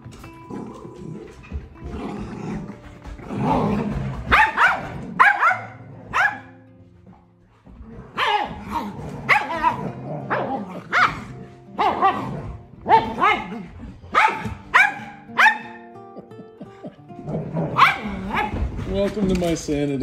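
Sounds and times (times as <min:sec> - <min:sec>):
dog barking: 0:04.3 - 0:06.6, 0:08.1 - 0:15.9, 0:17.4 - 0:18.7.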